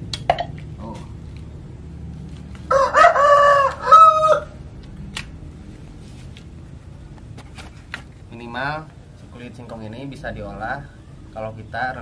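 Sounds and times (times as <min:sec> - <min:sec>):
rooster crowing: 0:02.6 - 0:04.7.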